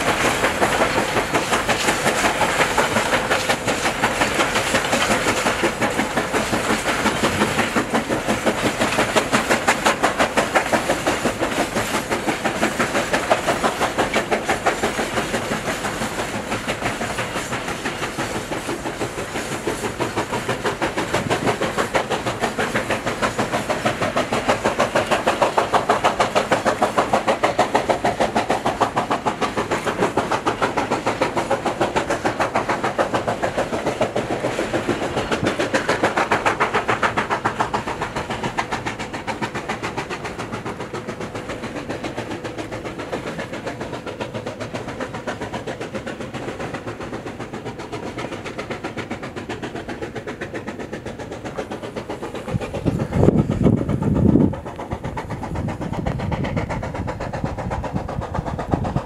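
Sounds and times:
steam locomotive chuffing: 0:00.0 - 0:59.0.

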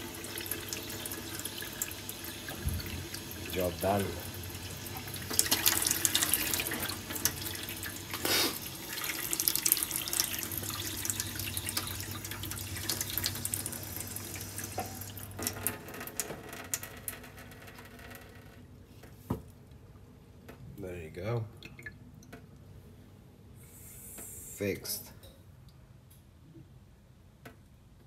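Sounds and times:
tap water splashing in steel sink: 0:01.5 - 0:03.9.

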